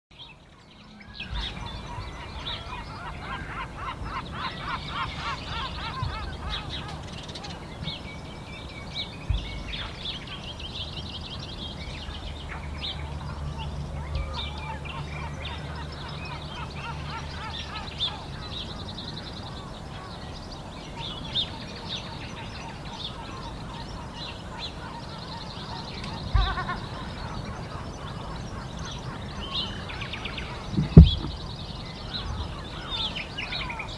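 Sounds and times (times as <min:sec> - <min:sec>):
birds calling: 0:00.1 - 0:33.9
steady low rumble: 0:00.2 - 0:33.9
dull thumps: 0:30.7 - 0:31.4.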